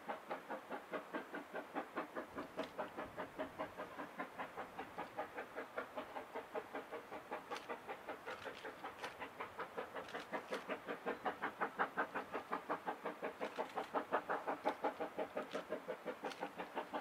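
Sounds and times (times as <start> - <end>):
steam locomotive chuffing: 0.0 - 17.0.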